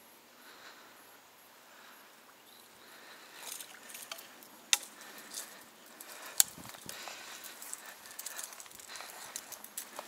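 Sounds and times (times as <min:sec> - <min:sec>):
leaves and grass rustling: 0:02.9 - 0:10.0.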